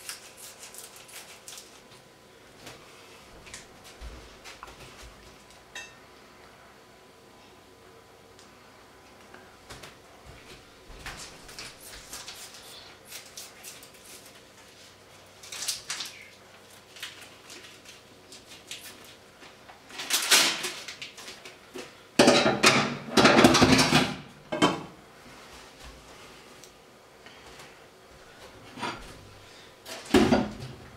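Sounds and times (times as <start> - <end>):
plastic package rustling: 11.2 - 21.6
kitchen clatter: 22.2 - 24.9.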